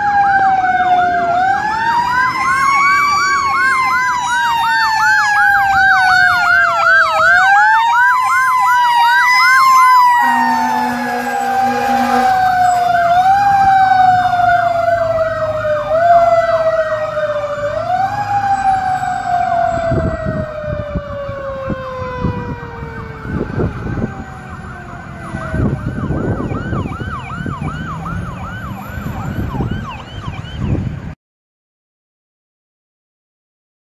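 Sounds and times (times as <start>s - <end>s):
electronic yelp siren: 0.0s - 31.1s
mechanical siren wailing: 0.0s - 31.1s
low horn blast: 10.0s - 13.4s.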